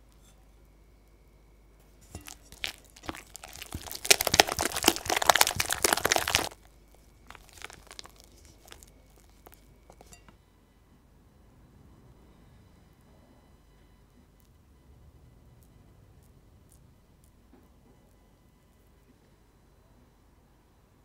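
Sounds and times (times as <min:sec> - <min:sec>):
spatula beating batter in a bowl: 0:02.0 - 0:10.3.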